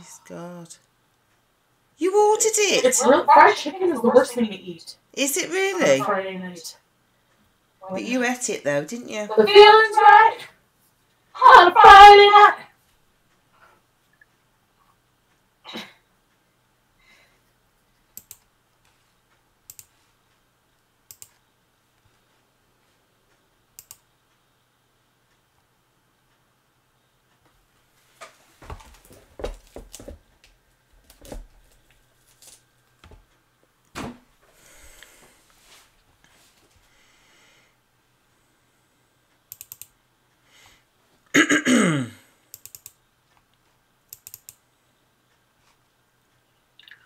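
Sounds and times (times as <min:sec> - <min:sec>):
computer mouse double-clicks: 0:18.2 - 0:18.5, 0:19.7 - 0:19.9, 0:21.1 - 0:21.4, 0:23.8 - 0:24.0, 0:39.5 - 0:39.9, 0:42.5 - 0:43.0, 0:44.1 - 0:44.6.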